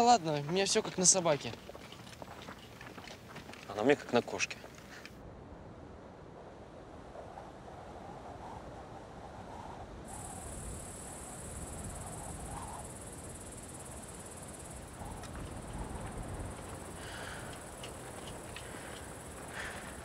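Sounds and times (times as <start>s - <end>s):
insects chirring: 0.0s - 5.1s, 10.1s - 20.0s
faint clicks: 16.6s - 20.0s.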